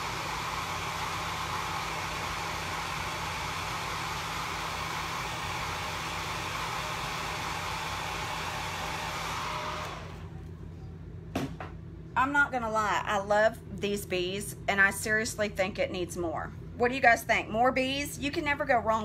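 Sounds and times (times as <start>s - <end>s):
hair dryer blowing: 0.0s - 10.4s.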